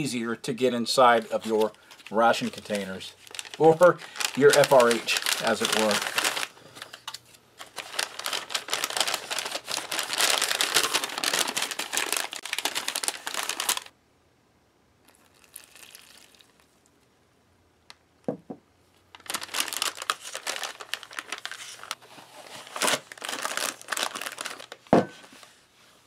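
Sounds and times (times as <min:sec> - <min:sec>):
plastic and paper crinkling: 0:00.9 - 0:13.9, 0:19.0 - 0:25.6.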